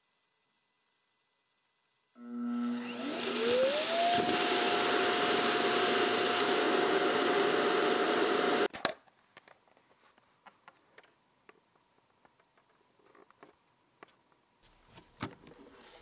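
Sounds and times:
suction motor rushing whine: 2.2s - 8.7s.

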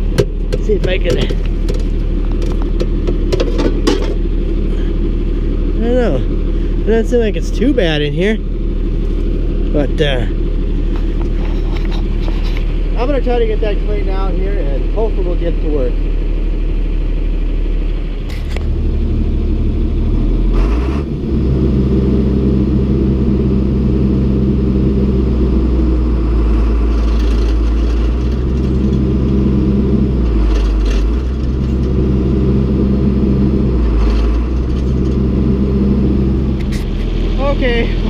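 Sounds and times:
gear clunks: 0.0s - 4.8s, 26.4s - 32.2s, 33.6s - 35.4s
tractor engine running: 0.0s - 38.0s.

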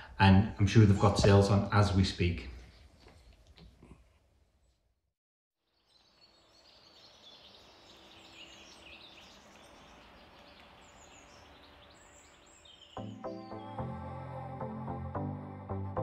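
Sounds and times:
small birds chirping: 5.6s - 13.9s.

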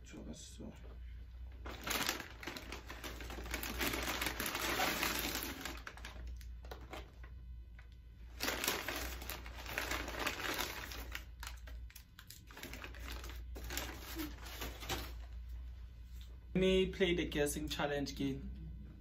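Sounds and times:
paper packaging crinkling: 1.6s - 15.4s.

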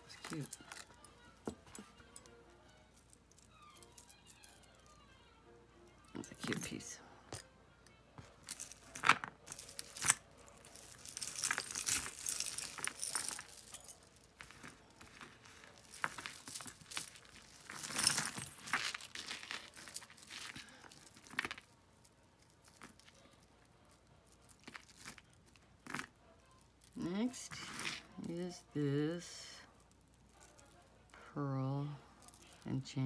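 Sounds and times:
metal chains clinking and jangling: 0.0s - 4.9s, 6.2s - 7.4s, 8.4s - 21.7s, 22.3s - 26.1s, 32.1s - 33.0s.

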